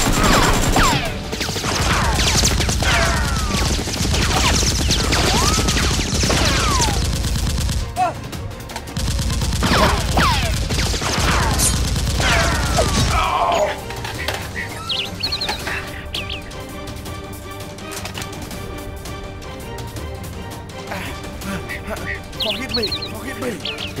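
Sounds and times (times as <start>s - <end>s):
rapid automatic gunfire: 0.0s - 8.0s, 9.0s - 13.2s
background music: 0.0s - 24.0s.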